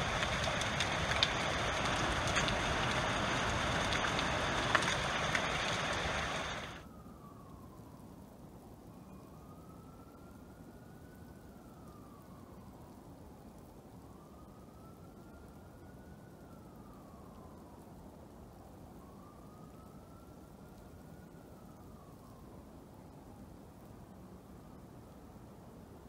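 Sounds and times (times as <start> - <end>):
heavy rain pouring: 0.0 - 6.8
water drips ticking: 0.0 - 6.8
distant siren wailing: 0.0 - 26.0.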